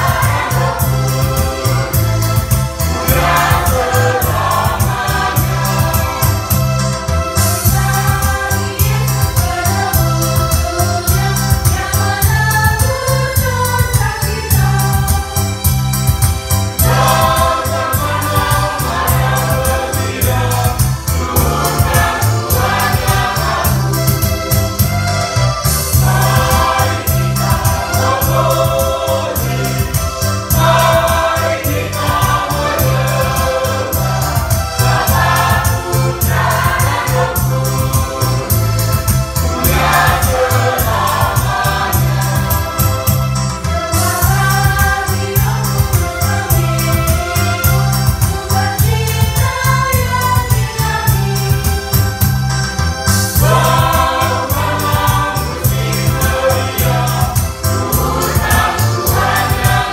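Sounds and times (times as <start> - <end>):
mixed choir singing a hymn: 0.0 - 52.5, 53.2 - 59.9.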